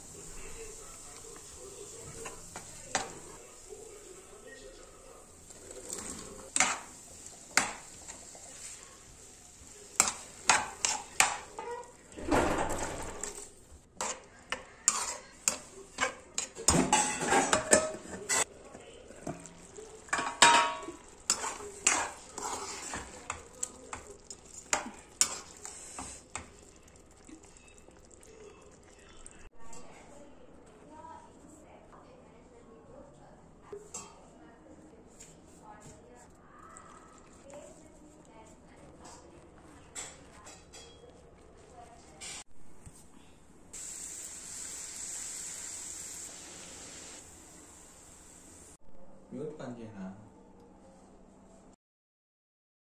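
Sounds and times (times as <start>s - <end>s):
scraping and sloshing in pan: 5.2s - 29.3s.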